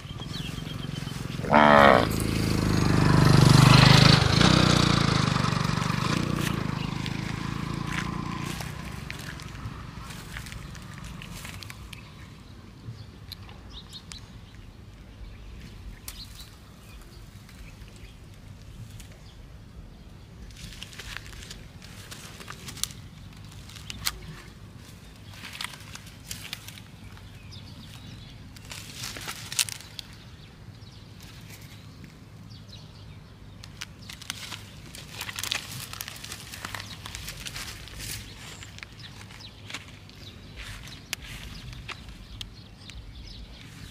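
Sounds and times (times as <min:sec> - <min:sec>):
cow rustling through dry grass: 0:00.0 - 0:02.5, 0:06.2 - 0:11.9, 0:20.5 - 0:30.4, 0:34.0 - 0:42.3, 0:43.6 - 0:43.9
low outdoor rumble: 0:00.0 - 0:43.9.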